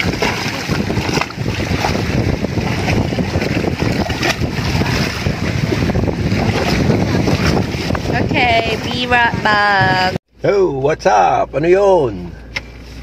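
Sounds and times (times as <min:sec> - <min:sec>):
shallow sea water washing: 0:00.0 - 0:10.2
swimmer splashing: 0:00.0 - 0:10.2
wind buffeting microphone: 0:00.0 - 0:10.2.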